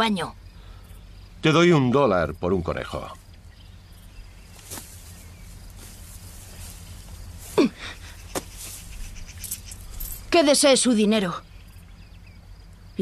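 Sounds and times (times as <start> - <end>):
rustling in tall grass: 3.1 - 10.6.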